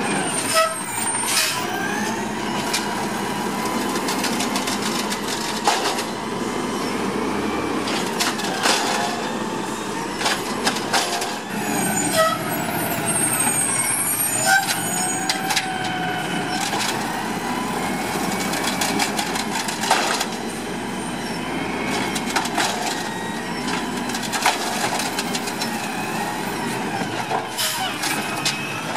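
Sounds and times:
diesel engine running: 0.0s - 28.9s
cart clanking against hopper: 3.9s - 6.2s, 7.8s - 9.4s, 10.2s - 11.6s, 18.3s - 20.4s, 21.9s - 25.9s.

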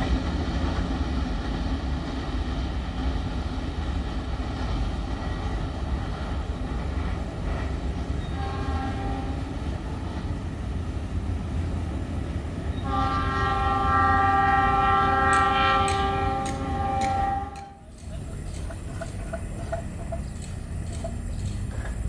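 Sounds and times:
train rumbling: 0.0s - 22.0s
train horn blasts: 8.2s - 9.6s, 12.8s - 17.8s.

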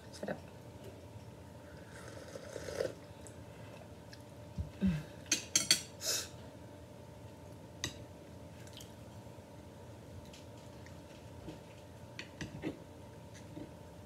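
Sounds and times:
tableware clinking and scraping: 5.3s - 5.9s.

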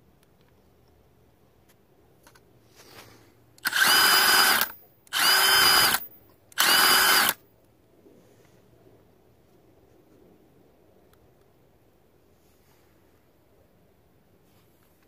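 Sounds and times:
impact driver motor whining: 3.6s - 6.0s, 6.6s - 7.4s.

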